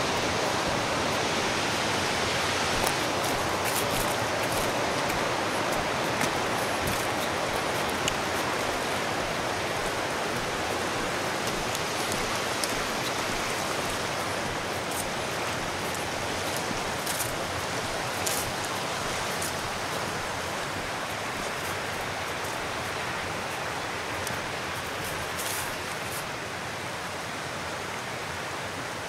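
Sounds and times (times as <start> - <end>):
river water rushing: 0.0 - 29.0
faint ticks: 6.1 - 8.9.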